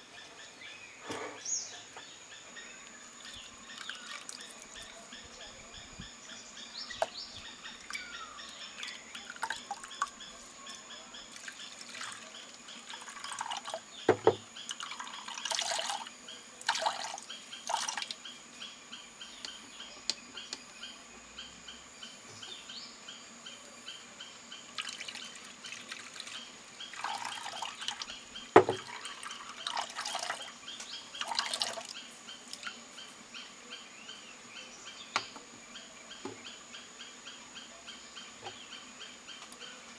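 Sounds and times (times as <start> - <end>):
knocks against bowl: 14.1 - 14.4, 28.6 - 28.8.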